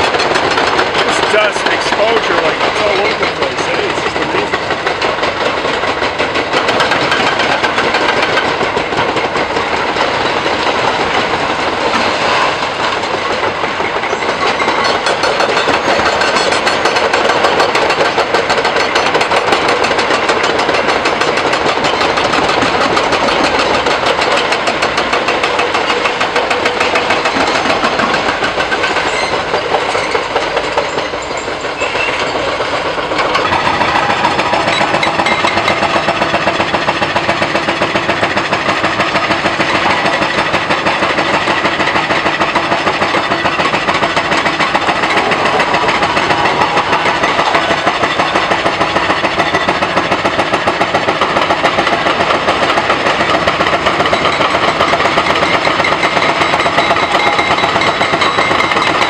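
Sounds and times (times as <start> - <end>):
mechanical hammering on concrete: 0.0 - 10.1, 13.9 - 32.0, 33.1 - 59.0
diesel engines running: 0.0 - 59.0.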